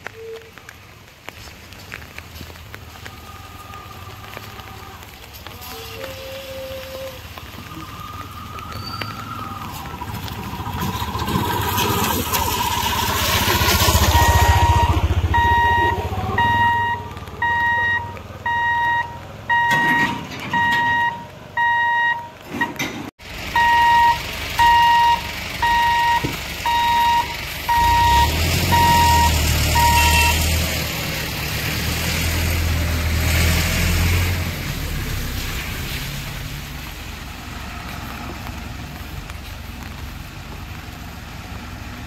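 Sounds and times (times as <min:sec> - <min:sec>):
auto-rickshaw engine passing: 0:06.6 - 0:19.7, 0:23.2 - 0:42.0
truck engine idling: 0:09.2 - 0:19.9, 0:23.2 - 0:33.0
level crossing warning beeps: 0:13.8 - 0:22.8, 0:23.6 - 0:30.4.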